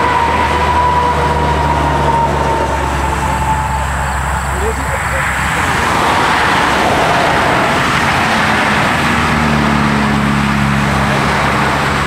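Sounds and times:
vehicle engine running: 0.1s - 12.0s
steady rushing noise: 2.7s - 9.7s.

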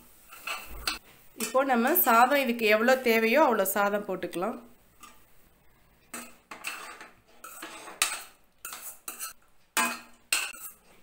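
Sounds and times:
steel spoon scraping metal pan: 0.2s - 2.0s, 6.1s - 11.0s.

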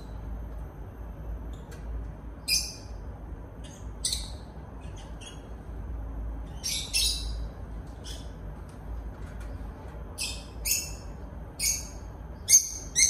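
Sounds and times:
bird chirping: 2.4s - 5.6s, 6.4s - 8.5s, 10.2s - 13.0s.

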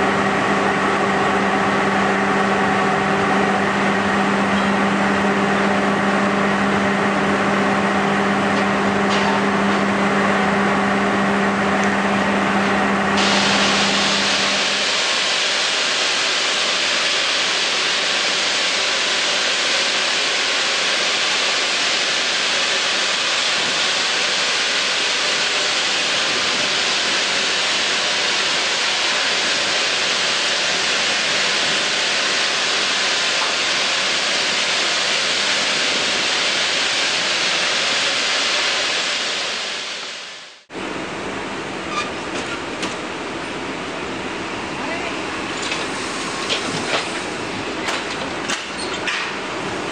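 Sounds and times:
steam hissing: 13.2s - 40.6s, 45.2s - 49.9s.

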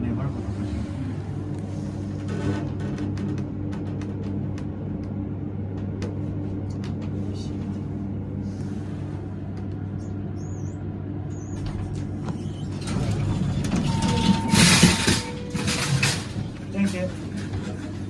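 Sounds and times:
elevator car humming: 0.0s - 18.0s
elevator doors sliding open: 1.9s - 4.4s, 11.3s - 18.0s.

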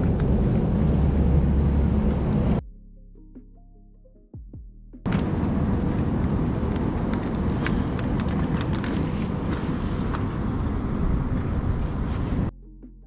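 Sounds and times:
wind buffeting microphone: 5.1s - 12.5s.

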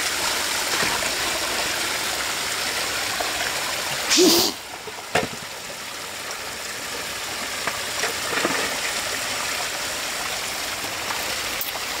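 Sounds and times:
creek water rushing over stones: 0.0s - 12.0s.

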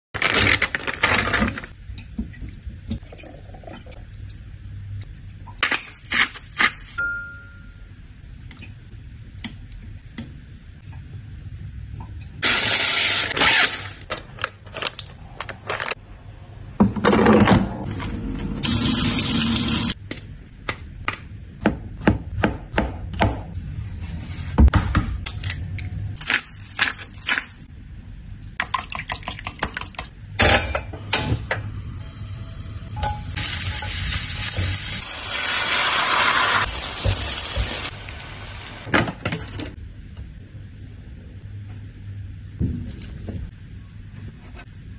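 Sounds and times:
food sizzling in wok: 33.2s - 38.9s.

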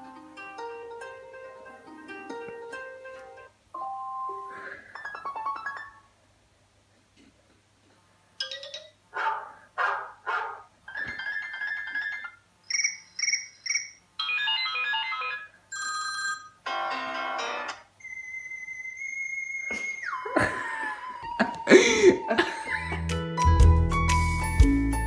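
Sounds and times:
beeping tones: 11.0s - 15.1s
quick electronic chirps: 12.6s - 14.0s.

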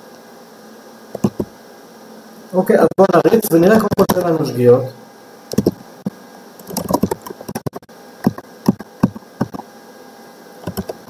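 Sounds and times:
typing on computer keyboard: 1.2s - 1.5s, 5.5s - 5.8s, 6.6s - 9.6s, 10.6s - 11.0s.

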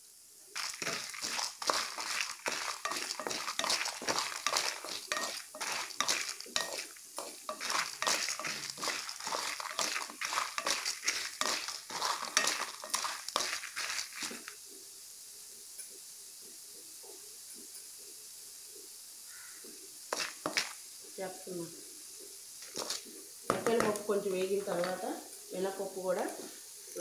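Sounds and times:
oil sizzling: 0.0s - 27.0s
wooden spatula scraping pan: 0.6s - 14.6s.

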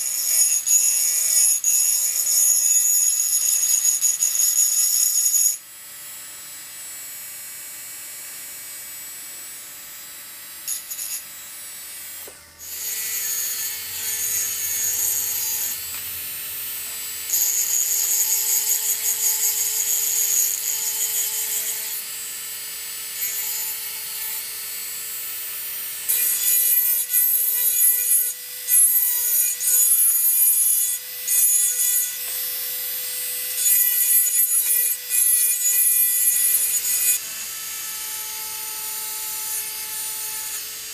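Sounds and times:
drill motor whine: 11.9s - 40.9s.

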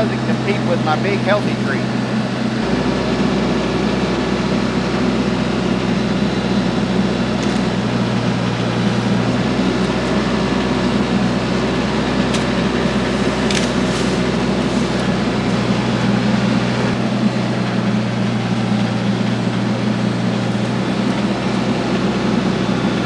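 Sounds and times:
tractor diesel engine running: 0.0s - 23.0s.

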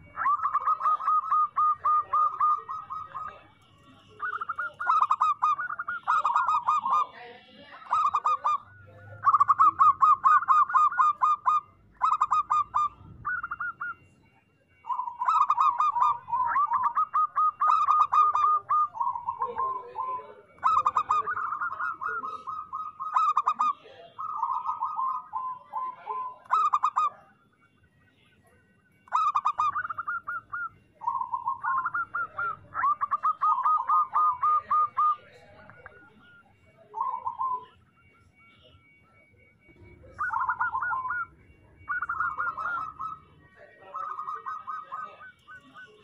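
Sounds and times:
dove cooing: 0.0s - 46.0s.

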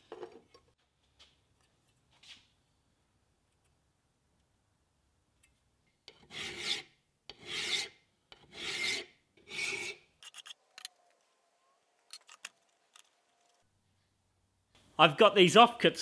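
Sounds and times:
hand file rasping on metal: 6.1s - 10.6s.

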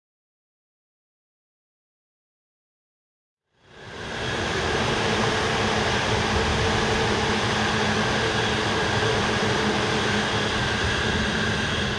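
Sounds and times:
electric train running past: 3.6s - 11.9s.

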